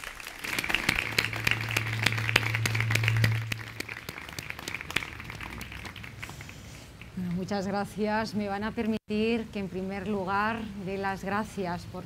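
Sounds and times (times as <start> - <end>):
audience applauding: 0.0 - 7.1
low steady hum: 0.4 - 12.0.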